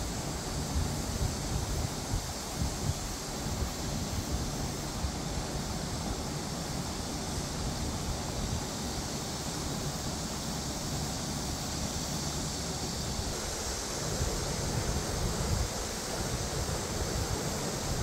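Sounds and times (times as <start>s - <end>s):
wind on microphone: 0.0s - 6.5s, 13.0s - 18.0s.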